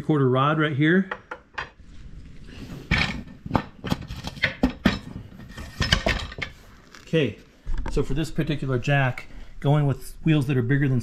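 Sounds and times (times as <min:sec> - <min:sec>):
metal rod clanking: 0:02.9 - 0:06.6.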